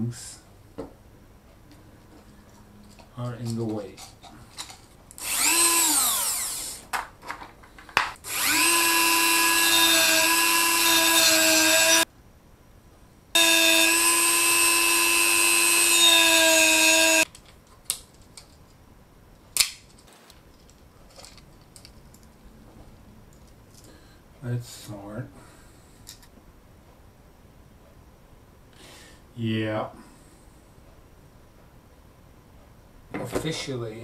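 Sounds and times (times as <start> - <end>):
rotary tool whining: 5.2 - 6.9, 8.2 - 12.1, 13.4 - 17.3.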